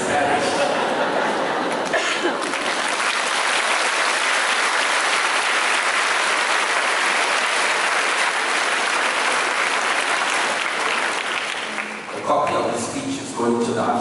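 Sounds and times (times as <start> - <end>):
congregation applauding: 1.6 - 12.8.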